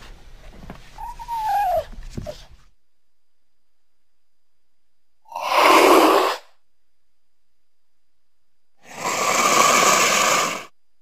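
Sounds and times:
cougar hissing: 5.3s - 6.5s, 8.8s - 10.7s.

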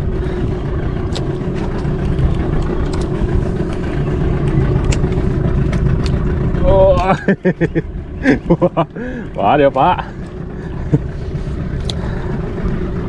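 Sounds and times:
wind rumble on microphone: 0.0s - 8.5s
boat engine running at low revs: 0.0s - 13.0s.

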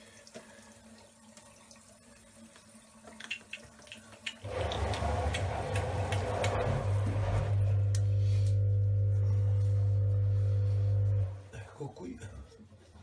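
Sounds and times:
water running from a tap: 0.0s - 7.1s.

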